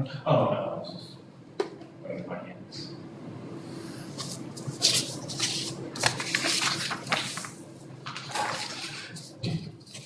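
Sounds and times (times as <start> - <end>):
paper rustling and crackling: 4.2 - 10.0.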